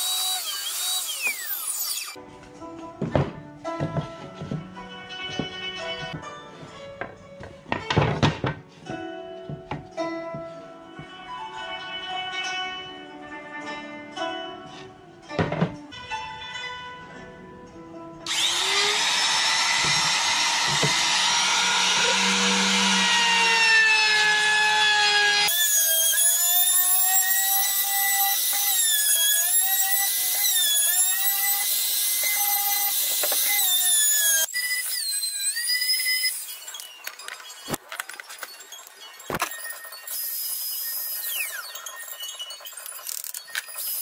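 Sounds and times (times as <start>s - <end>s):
trim router cutting wood: 0.0s - 2.2s, 18.3s - 36.6s.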